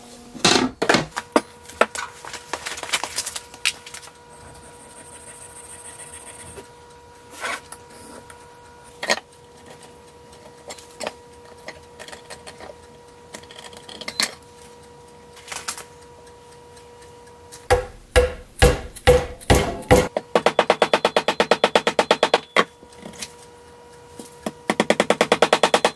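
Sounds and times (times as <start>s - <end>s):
faint steady hum: 0.0s - 25.9s
hammer striking metal tool: 17.7s - 22.7s, 24.8s - 25.9s.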